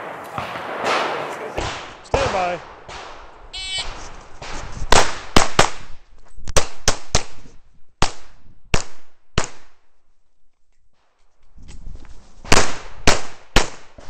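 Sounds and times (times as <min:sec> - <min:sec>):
pistol shots: 0:00.0 - 0:05.9.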